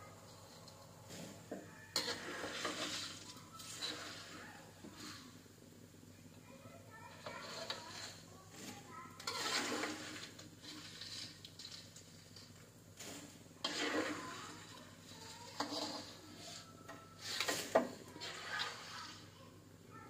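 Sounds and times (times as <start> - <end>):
metal spatula scraping wok: 0.2 - 5.4, 7.1 - 19.4
hot oil sizzling: 2.0 - 5.4, 7.1 - 19.4.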